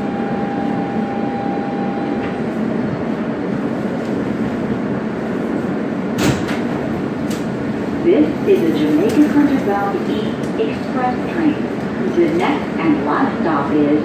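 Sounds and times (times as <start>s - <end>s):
thin steady whine: 0.0s - 2.6s
subway car wheels rumbling: 0.0s - 14.0s.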